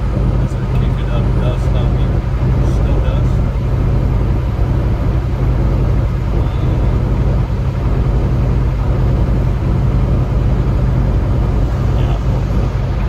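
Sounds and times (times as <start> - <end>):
truck engine and tyre drone: 0.0 - 13.0.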